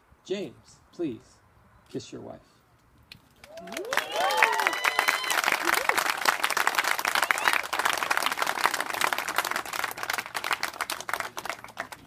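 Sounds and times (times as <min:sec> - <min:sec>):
crowd applauding: 0:03.4 - 0:12.0.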